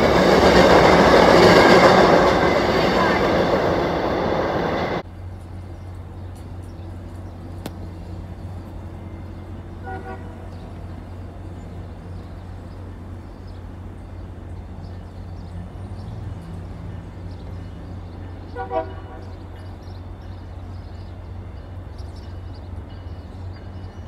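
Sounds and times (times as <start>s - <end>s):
distant horn toot: 9.7s - 10.8s, 18.5s - 19.4s.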